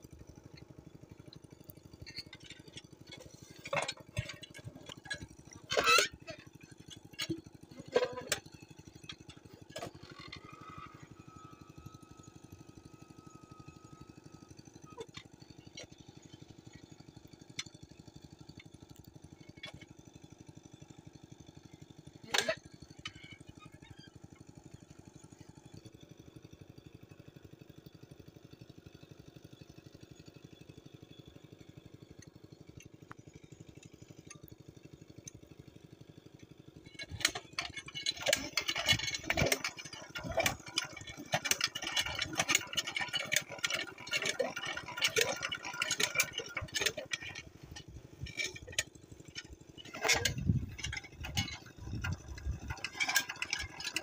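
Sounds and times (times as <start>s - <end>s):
metallic clanking and knocking: 2.1s - 6.2s, 36.9s - 54.0s
engine hum: 36.3s - 54.0s.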